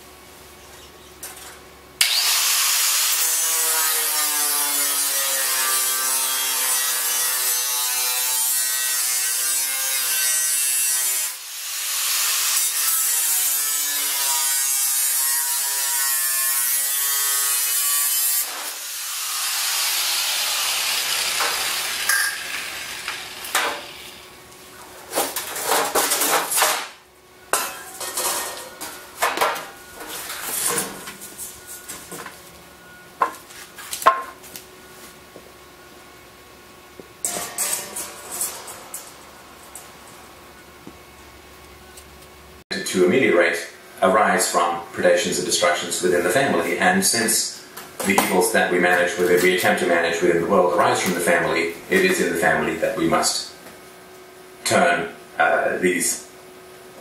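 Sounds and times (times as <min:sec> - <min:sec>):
angle grinder cutting steel: 0:02.0 - 0:24.3, 0:37.2 - 0:39.8.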